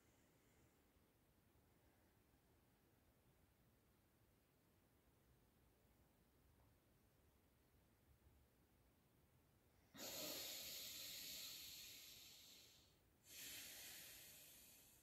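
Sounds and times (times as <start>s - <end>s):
person breathing deeply: 9.9s - 15.0s.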